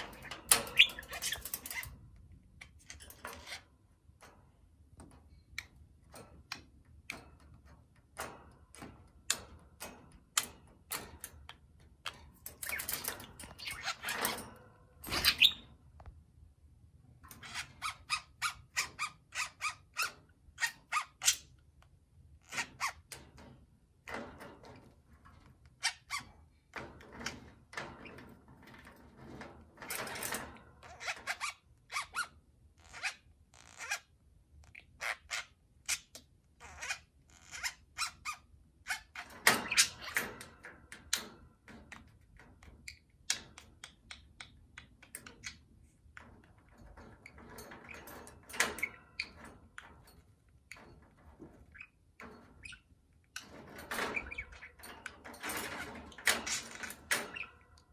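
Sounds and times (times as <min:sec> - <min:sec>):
beak tapping on wire cage: 0:00.0 - 0:02.0, 0:46.2 - 0:52.8, 0:53.4 - 0:57.8.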